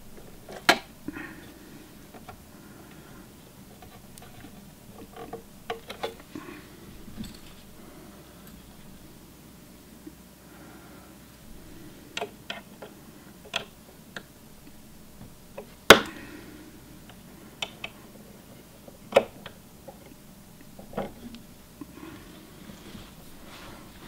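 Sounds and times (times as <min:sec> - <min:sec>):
screwdriver clicking on metal plate: 0:03.8 - 0:06.3.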